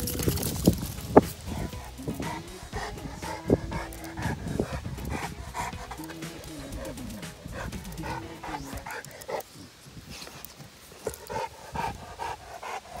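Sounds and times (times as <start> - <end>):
dog panting: 0.0 - 13.0.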